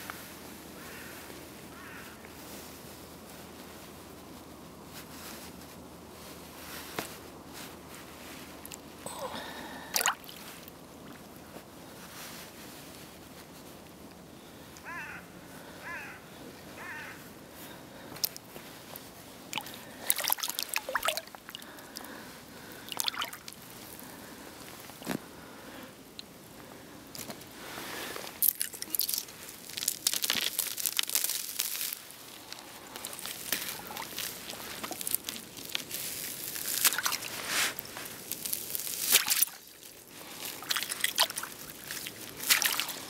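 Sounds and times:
water sloshing: 9.9s - 10.7s, 19.5s - 22.1s, 22.7s - 23.6s, 40.5s - 43.0s
ice crunching and crackling: 18.1s - 25.3s, 27.1s - 43.0s.

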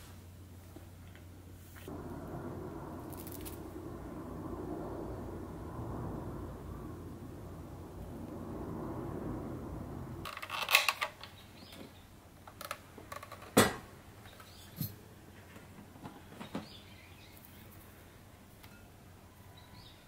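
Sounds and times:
low steady hum: 0.0s - 12.5s.

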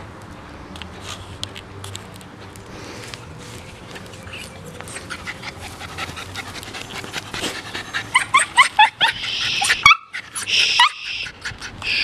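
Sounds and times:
dog panting: 4.8s - 10.5s
dog whimpering squeaks: 7.8s - 12.0s.

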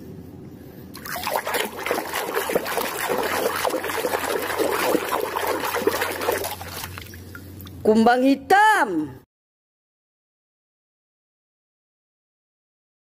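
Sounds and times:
water splashing in plastic basin: 1.0s - 7.8s.

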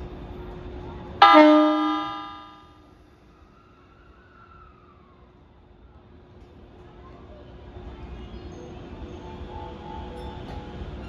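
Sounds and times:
electric train horn blast: 1.2s - 2.7s.

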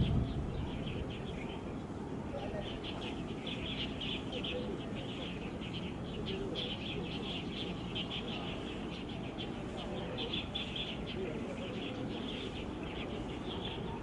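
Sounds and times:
low background rumble: 0.0s - 6.2s
small birds chirping: 0.0s - 14.0s.

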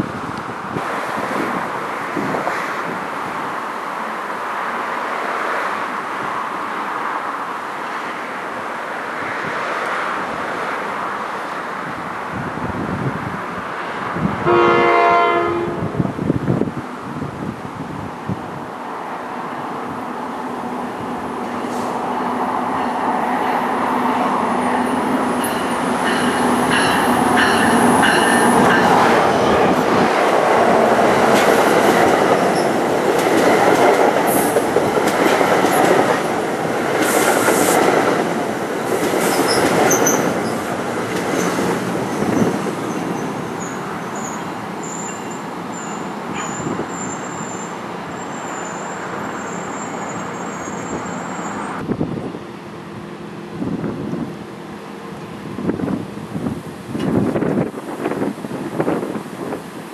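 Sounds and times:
train wheels clattering on rails: 25.0s - 47.6s
high wheel squeals: 42.1s - 51.8s.

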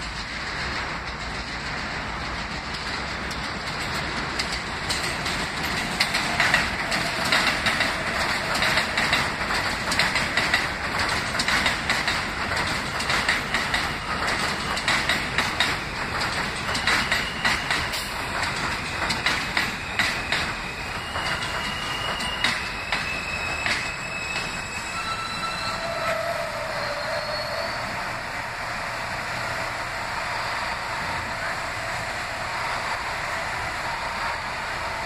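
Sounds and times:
train wheels clattering over rail joints: 0.0s - 27.8s.

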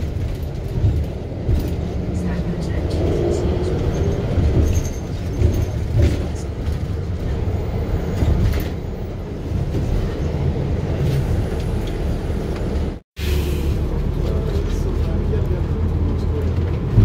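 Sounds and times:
bus rumbling inside cabin: 0.0s - 17.0s.

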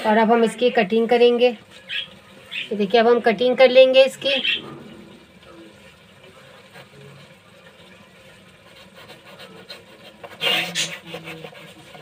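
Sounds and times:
bread knife sawing through cake: 8.6s - 12.0s
loud scraping rasp: 8.7s - 12.0s.

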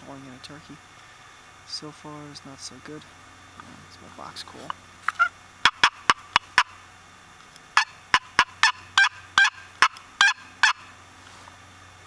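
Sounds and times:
turkey call yelps: 5.1s - 6.8s, 7.8s - 10.9s.

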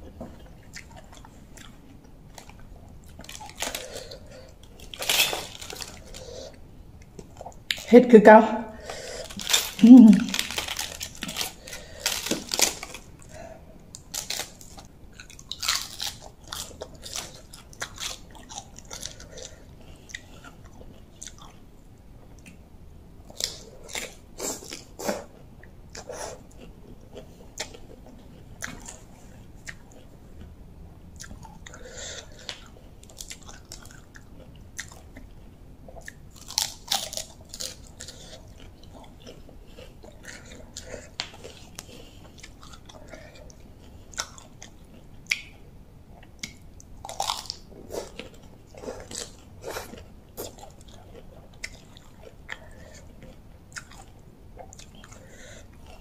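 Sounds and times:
person chewing crunchy food: 0.0s - 7.9s, 8.8s - 21.7s, 23.2s - 56.0s.

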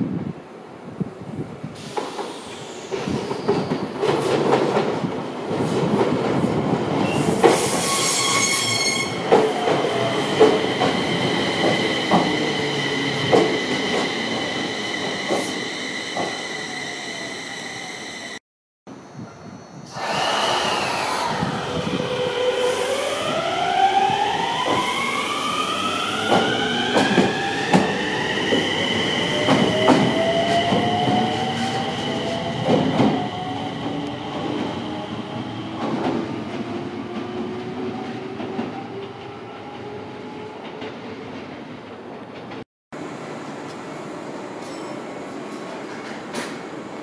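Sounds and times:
train wheels clacking: 26.2s - 28.0s, 29.3s - 31.2s.

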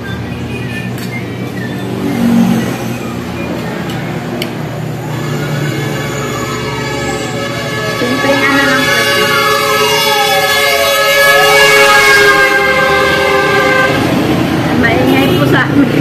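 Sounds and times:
highway traffic passing: 0.0s - 16.0s
siren wailing: 1.3s - 14.0s.

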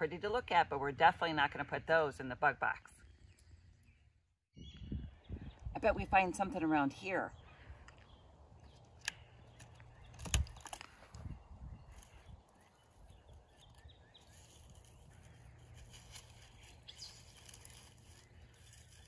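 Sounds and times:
hand rustling through dead leaves: 11.9s - 19.0s.

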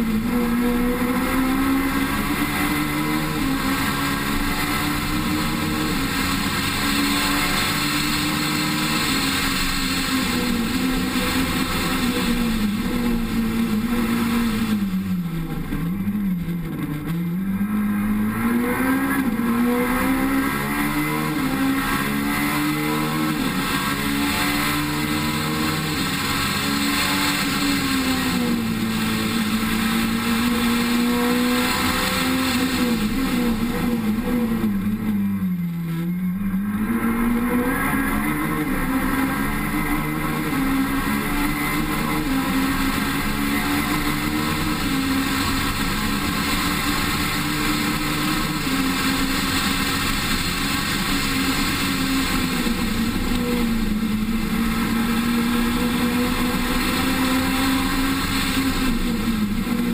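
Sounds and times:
rally car engine: 0.0s - 59.9s
wind and road noise: 0.0s - 59.9s.

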